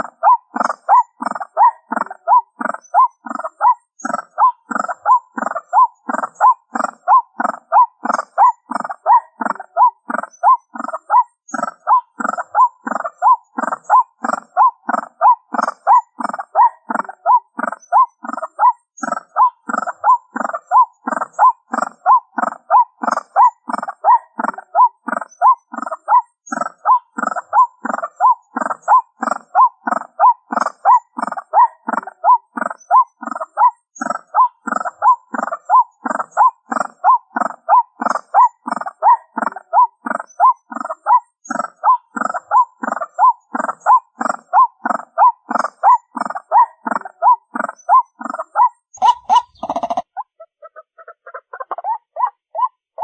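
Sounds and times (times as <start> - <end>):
waterhen calling through speaker: 42.6 - 52.0.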